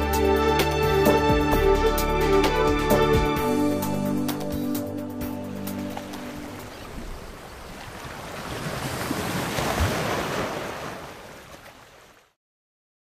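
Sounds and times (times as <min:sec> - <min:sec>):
sea surf washing in: 0:05.4 - 0:12.2.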